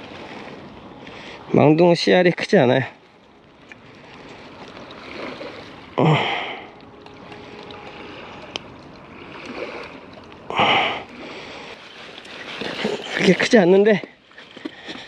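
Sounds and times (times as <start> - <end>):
heavy breaths out: 6.0 - 6.7.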